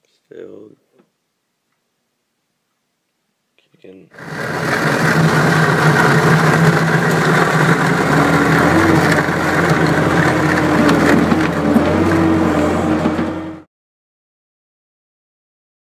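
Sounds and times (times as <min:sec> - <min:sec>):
plow blade pushing snow: 0:04.2 - 0:13.7
snow plow engine running: 0:04.2 - 0:13.7.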